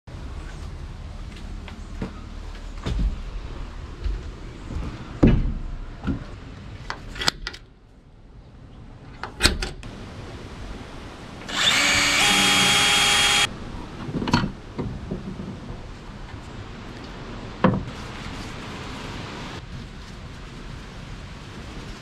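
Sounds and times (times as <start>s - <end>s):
cordless drill drilling into aluminum: 11.5s - 13.5s.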